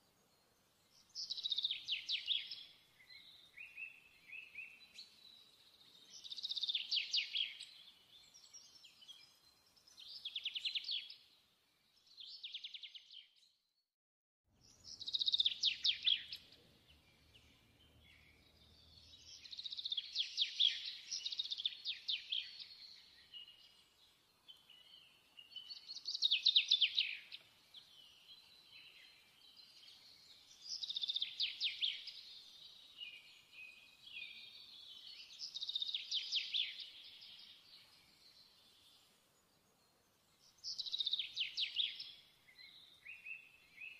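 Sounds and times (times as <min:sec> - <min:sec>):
songbird chirping and trilling: 0:00.0 - 0:13.8, 0:14.6 - 0:43.9.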